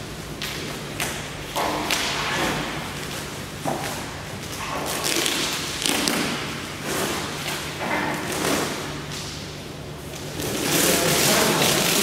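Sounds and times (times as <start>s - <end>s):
plastic film rustling and crinkling: 3.0s - 8.9s, 10.0s - 12.0s.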